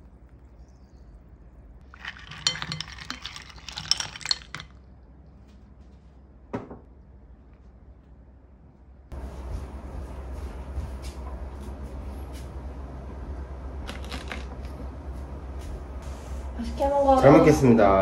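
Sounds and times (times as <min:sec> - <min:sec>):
ice balls clinking in glass bowl: 0:01.8 - 0:04.9.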